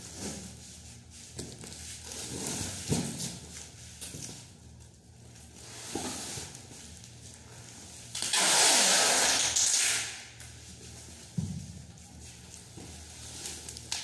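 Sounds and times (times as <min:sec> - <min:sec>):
packing tape ripping off roll: 0:08.1 - 0:10.4.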